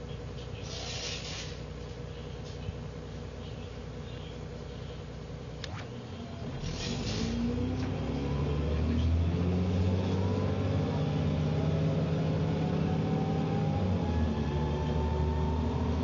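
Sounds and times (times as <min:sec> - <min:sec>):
bus pulling away: 0:00.0 - 0:02.7, 0:05.7 - 0:16.0
air hiss: 0:00.6 - 0:01.6
rising axle whine: 0:05.5 - 0:16.0.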